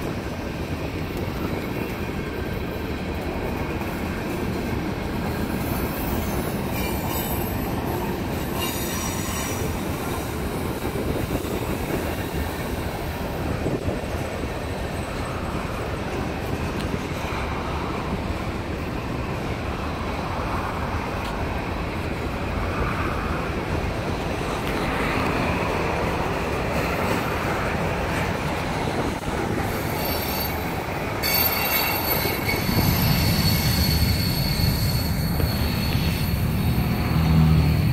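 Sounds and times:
train wheels rumbling on rail: 0.0 - 37.9
high-pitched wheel squeal: 5.6 - 9.8, 29.7 - 37.9.

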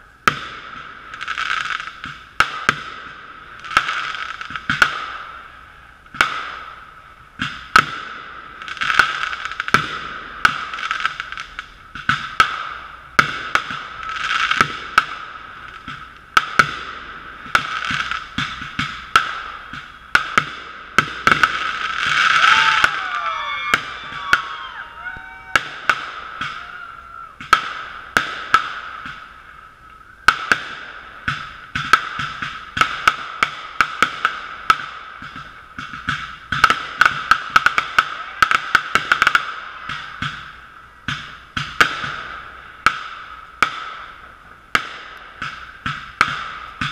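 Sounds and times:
fireworks crackling: 0.0 - 46.9
muffled fireworks bangs: 0.0 - 46.9
fireworks whistles gliding down: 17.1 - 31.4.

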